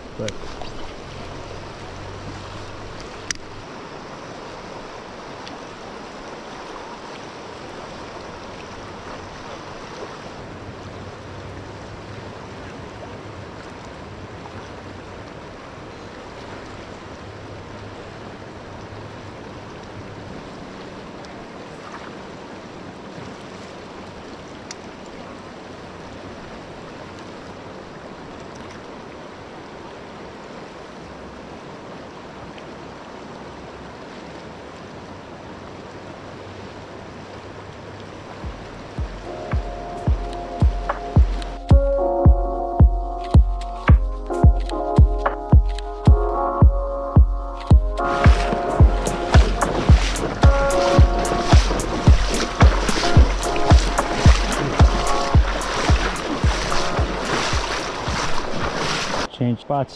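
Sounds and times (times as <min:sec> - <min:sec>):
river water rushing: 0:00.0 - 0:59.9.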